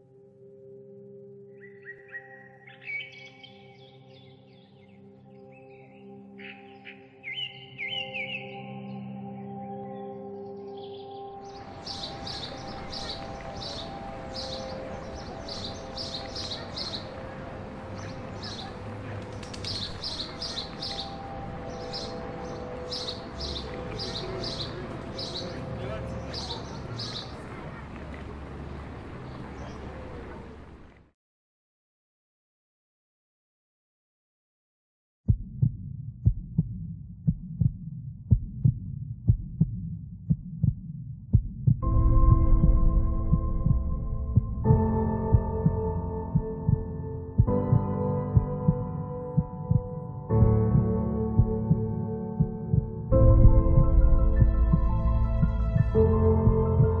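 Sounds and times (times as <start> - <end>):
birds chirping: 1.5 - 31.0
heartbeat thumps: 35.3 - 57.0
low steady drone: 41.8 - 57.0.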